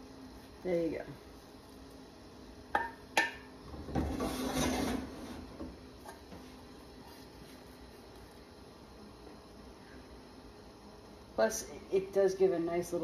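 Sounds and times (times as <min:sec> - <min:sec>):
spatula scraping saucepan: 0:04.0 - 0:05.5.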